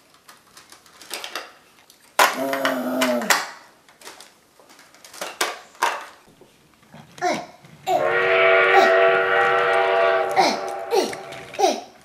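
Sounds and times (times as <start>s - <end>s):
loud pitched sound: 7.9s - 11.6s.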